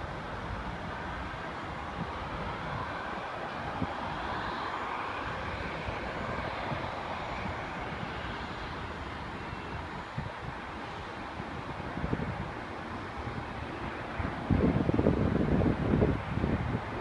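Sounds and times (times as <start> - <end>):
airliner engine taking off: 0.0 - 17.0
wind rumbling on microphone: 0.0 - 17.0.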